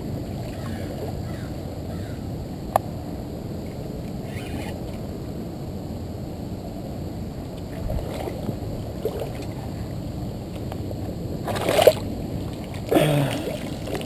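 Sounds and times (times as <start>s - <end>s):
water sloshing: 7.7s - 14.0s
short grunt: 12.9s - 13.6s.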